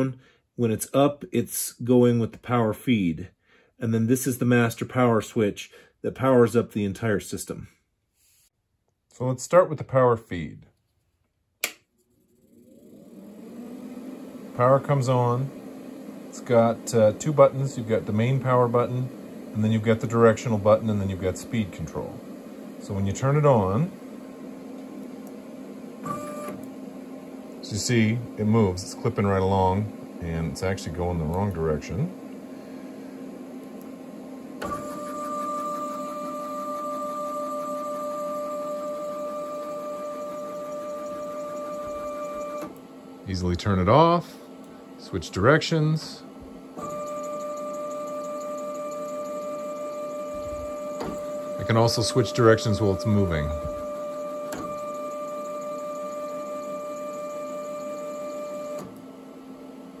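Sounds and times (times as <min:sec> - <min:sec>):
click: 0:11.6 - 0:11.8
faint motor hum: 0:12.1 - 1:00.0
stepper motor whine: 0:12.3 - 0:59.1.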